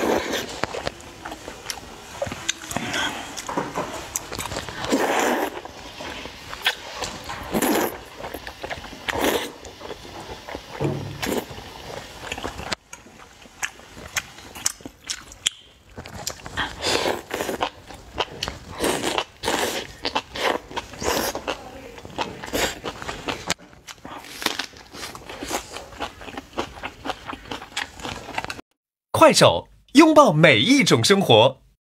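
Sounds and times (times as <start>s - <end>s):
wet noodle slurps: 0.0s - 0.8s, 4.1s - 12.7s, 16.0s - 17.8s, 18.5s - 21.5s
smacking chewing: 6.5s - 28.6s.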